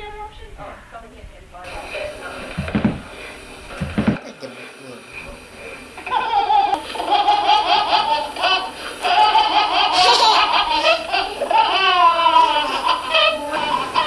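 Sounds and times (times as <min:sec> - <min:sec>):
small child laughing: 0:06.0 - 0:14.0.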